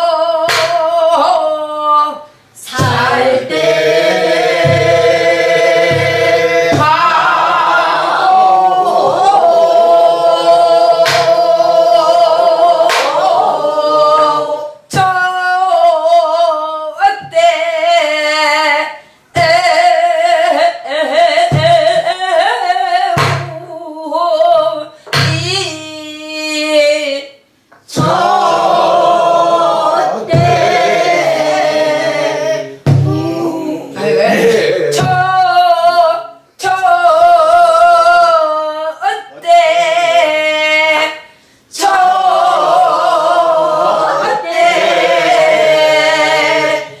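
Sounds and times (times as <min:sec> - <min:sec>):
folk song with heavy vibrato: 0:00.0 - 0:33.7
deep drum thumps: 0:02.7 - 0:07.6, 0:21.4 - 0:22.1, 0:27.9 - 0:28.7, 0:30.2 - 0:31.5, 0:32.8 - 0:33.4.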